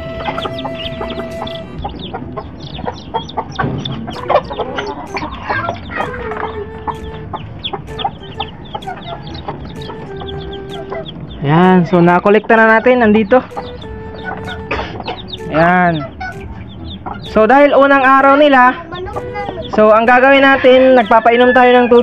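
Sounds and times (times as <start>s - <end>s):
chicks peeping: 0.0s - 22.0s
hen clucking: 0.0s - 22.0s.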